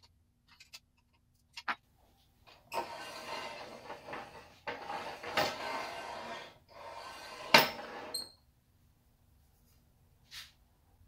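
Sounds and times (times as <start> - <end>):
tailstock scraping along metal rails: 2.7 - 8.2.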